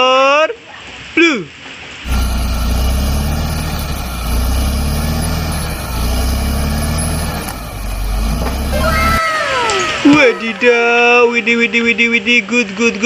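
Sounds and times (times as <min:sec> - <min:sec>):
bulldozer diesel engine rumbling: 0:02.1 - 0:09.2.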